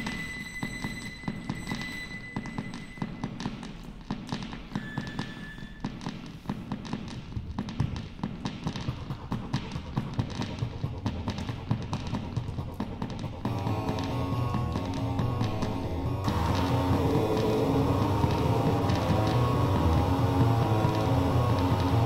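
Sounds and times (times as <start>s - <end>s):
high electronic beep: 0.0s - 3.2s
glitchy electronic clicks and crackles: 13.5s - 22.0s.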